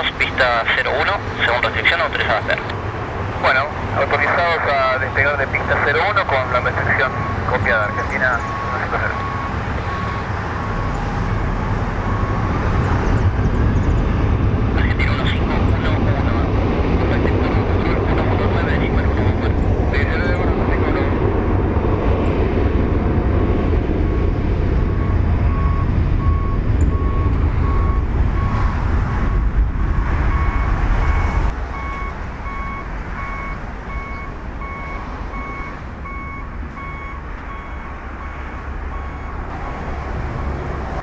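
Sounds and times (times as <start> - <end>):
jet engines rumbling: 0.0 - 41.0
higher electronic beep: 6.5 - 10.3.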